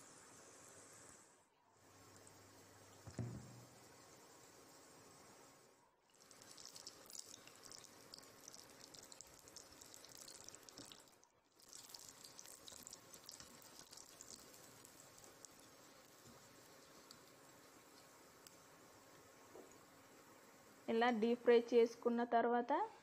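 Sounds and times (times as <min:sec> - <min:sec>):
batter frying in hot oil: 0:06.1 - 0:20.9.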